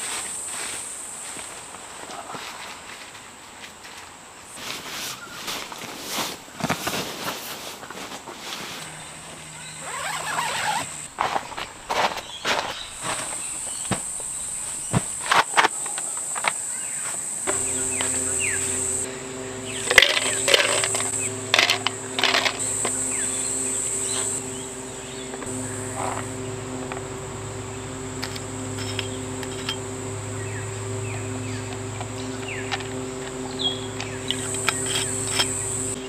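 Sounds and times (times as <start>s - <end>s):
high buzz of insects: 0.0s - 1.7s, 8.8s - 11.3s, 12.2s - 36.0s
steady low hum: 16.6s - 36.0s
ice cubes clinking into plastic tumbler: 19.9s - 23.0s.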